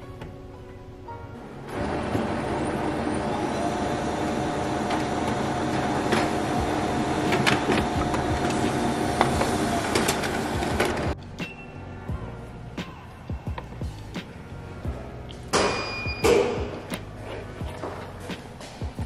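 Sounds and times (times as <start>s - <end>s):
printer whirring: 1.7s - 11.2s
printer paper feed clicks: 4.6s - 11.2s.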